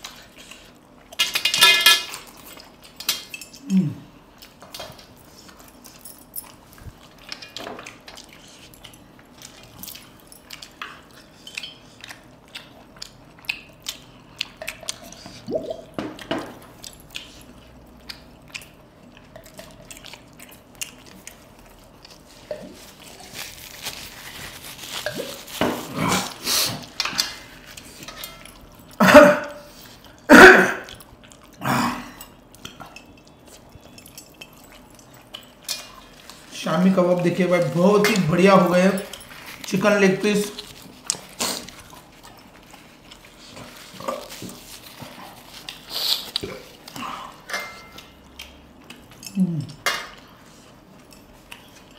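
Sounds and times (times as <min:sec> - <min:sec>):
wet chewing and lip-smacking: 0:04.3 - 0:25.6, 0:32.3 - 0:38.2, 0:40.4 - 0:51.9.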